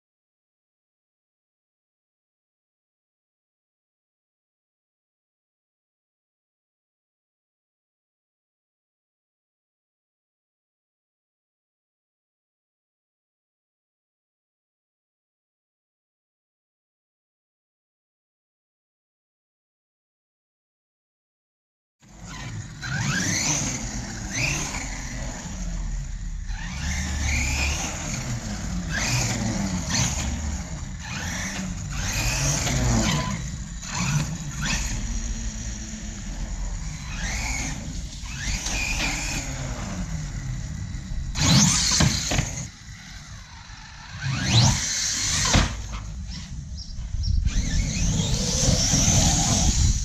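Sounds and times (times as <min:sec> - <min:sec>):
electric motor whining: 0:22.1 - 0:50.0.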